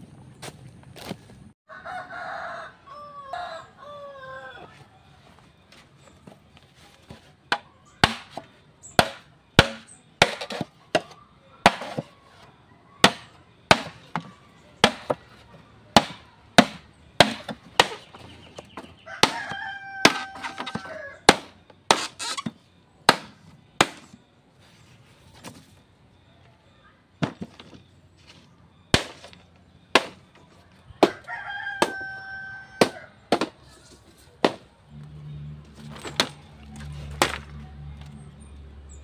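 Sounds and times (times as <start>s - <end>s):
rooster crowing: 1.7s - 5.0s, 19.0s - 21.3s, 31.0s - 33.2s
chopping blows: 7.5s - 12.1s, 13.0s - 15.3s, 15.9s - 22.5s.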